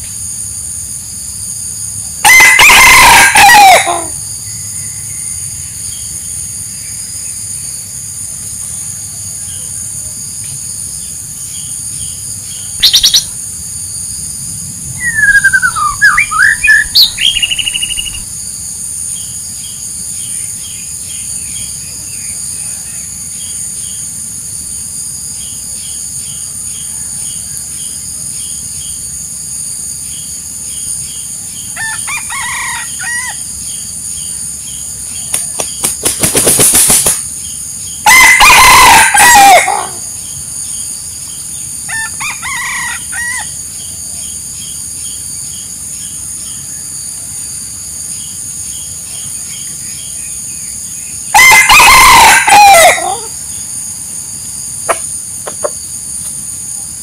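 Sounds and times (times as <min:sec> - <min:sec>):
high insect drone: 0:00.0 - 0:57.0
rooster crowing: 0:02.2 - 0:05.2, 0:15.0 - 0:18.3, 0:26.7 - 0:27.7, 0:31.8 - 0:33.5, 0:38.0 - 0:40.1, 0:41.9 - 0:43.6, 0:51.3 - 0:53.4
wing flapping: 0:35.2 - 0:37.3.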